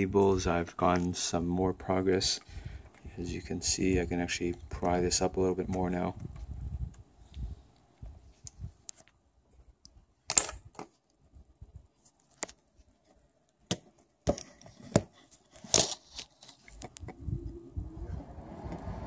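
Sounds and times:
plastic and tools clicking on desk: 13.7 - 17.2.

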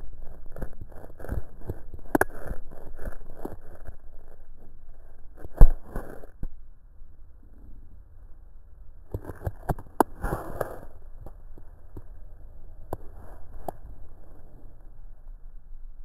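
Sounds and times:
fingers rubbing on camera: 0.0 - 6.4, 9.1 - 11.0.

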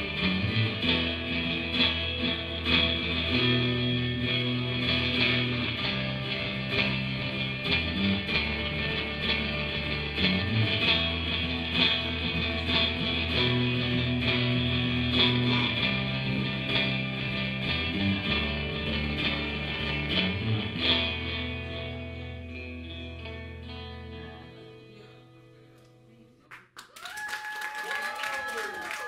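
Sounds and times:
electric guitar: 0.0 - 26.4.

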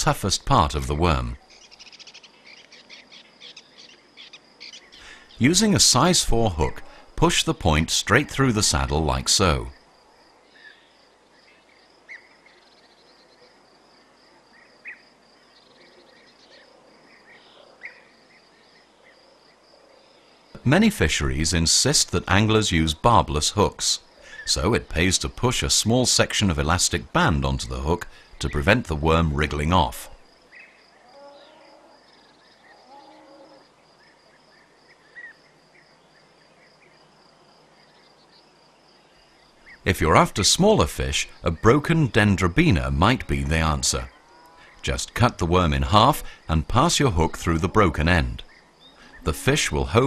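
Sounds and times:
insects chirring: 0.7 - 7.2, 8.8 - 29.3, 30.1 - 40.3, 48.3 - 50.0
loud insect chirps: 1.5 - 5.4, 9.7 - 20.6, 30.2 - 39.9.

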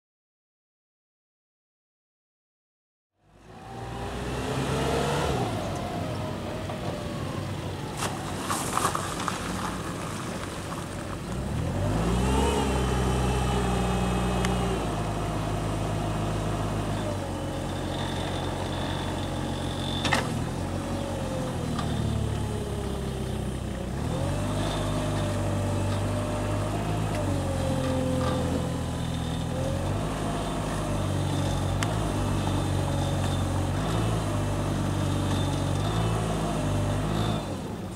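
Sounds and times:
diesel forklift engine revving: 3.2 - 37.9.

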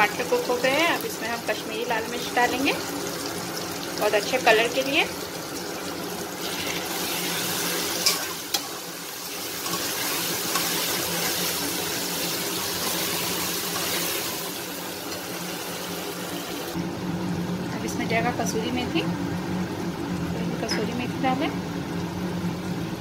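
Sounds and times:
masala sizzling in oil: 0.0 - 23.0
steel spatula stirring: 6.6 - 8.7, 9.4 - 14.3.

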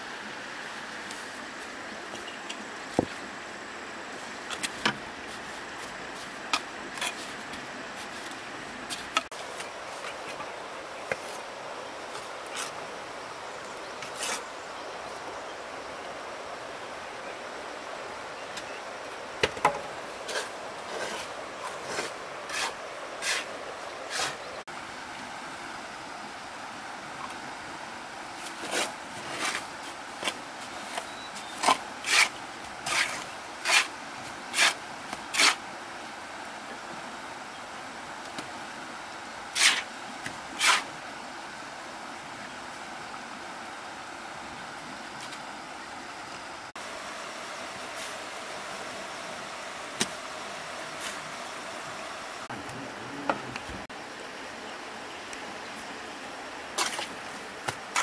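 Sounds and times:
steady background hiss: 0.0 - 58.0
knocks and scrapes of building work: 4.1 - 11.5, 14.0 - 14.5, 19.4 - 24.5, 28.3 - 35.6, 39.5 - 41.0, 56.8 - 58.0.

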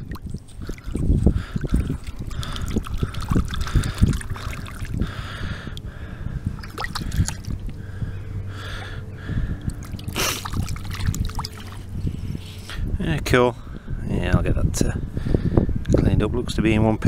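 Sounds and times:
water sloshing and splashing: 0.0 - 12.7.

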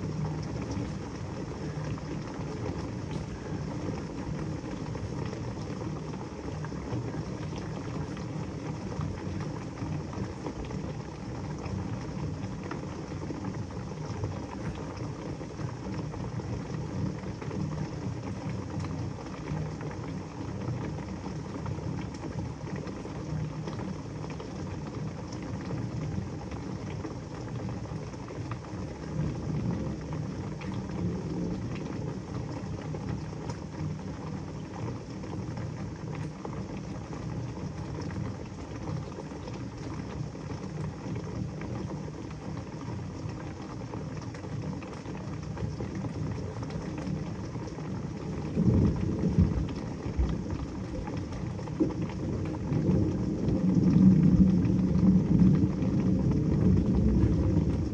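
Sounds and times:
heavy rain pouring: 0.0 - 57.9
thunder rumbling: 48.5 - 57.9.

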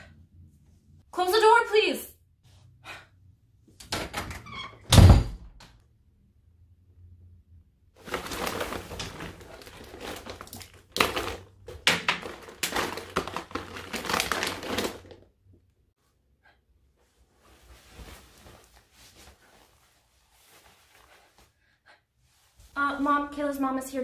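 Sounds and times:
plastic packaging crinkling: 8.0 - 15.3.

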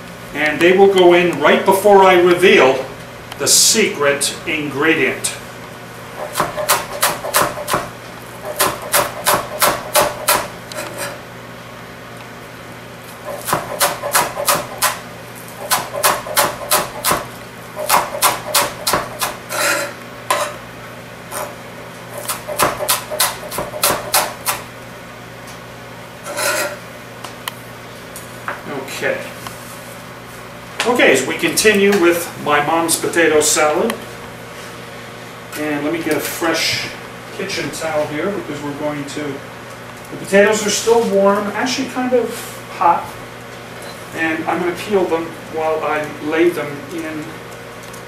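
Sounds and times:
knife chopping on cutting board: 6.2 - 10.5, 13.3 - 15.0, 15.6 - 19.4, 22.2 - 24.6.

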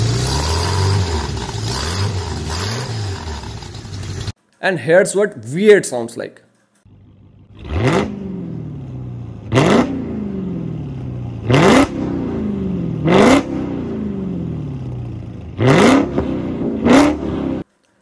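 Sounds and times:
engine exhaust idling and revving: 0.0 - 4.4, 6.9 - 17.7.

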